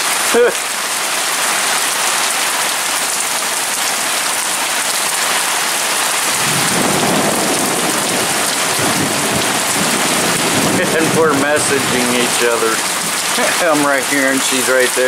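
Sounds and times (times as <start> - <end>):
heavy rain pouring: 0.0 - 15.0
thunder rumbling: 6.0 - 14.6.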